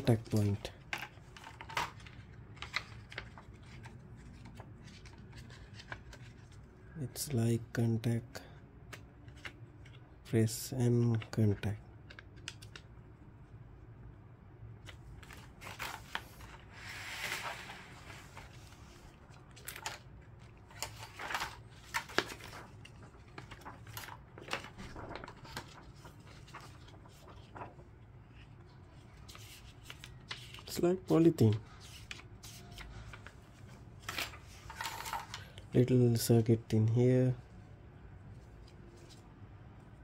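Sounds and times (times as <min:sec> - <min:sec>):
plastic sheets rustling: 0:00.0 - 0:06.7, 0:14.9 - 0:35.5.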